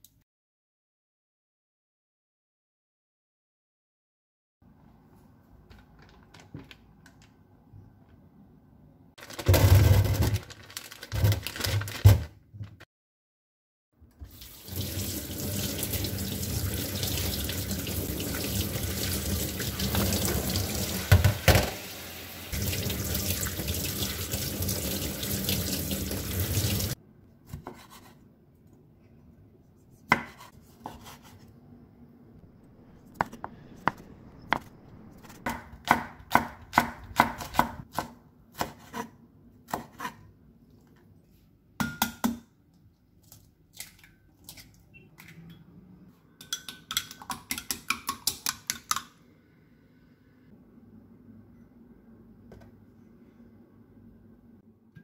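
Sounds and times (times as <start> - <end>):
kitchen tap running: 14.2 - 27.0
knife slicing on cutting board: 30.0 - 31.4.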